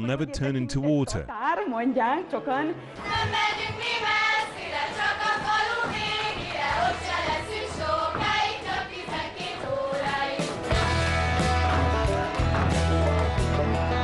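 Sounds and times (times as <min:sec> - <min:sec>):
women singing folk song together: 0:03.0 - 0:11.1
low bass line: 0:10.7 - 0:14.0.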